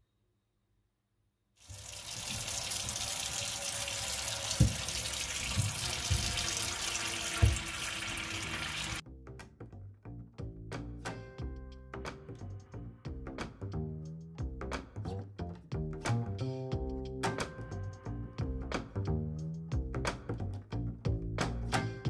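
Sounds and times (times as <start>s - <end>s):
tap running into metal sink: 1.7s - 9.0s
lemons thudding in metal basin: 4.5s - 8.1s.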